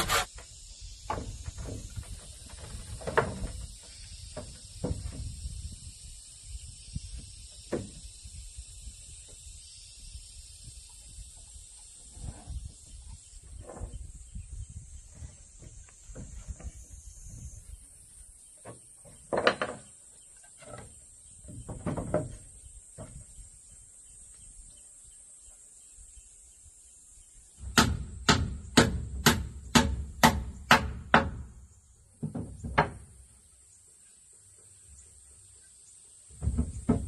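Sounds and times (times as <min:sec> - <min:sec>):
hammer striking wooden boards: 0:27.6 - 0:31.6, 0:32.2 - 0:33.1, 0:36.4 - 0:37.0.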